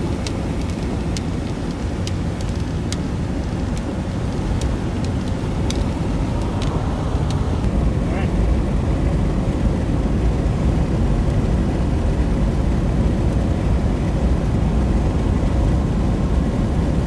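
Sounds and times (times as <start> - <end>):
car driving on highway: 0.0 - 17.0.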